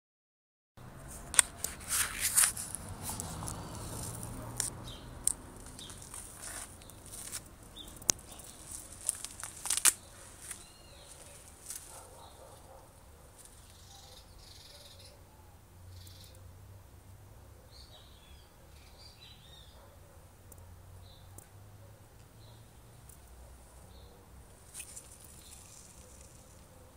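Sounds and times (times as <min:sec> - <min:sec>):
low outdoor background: 0:00.8 - 0:26.9
rustling: 0:01.0 - 0:13.8, 0:24.5 - 0:26.8
faint bird chirps: 0:10.0 - 0:11.5, 0:13.5 - 0:15.3, 0:15.9 - 0:16.5.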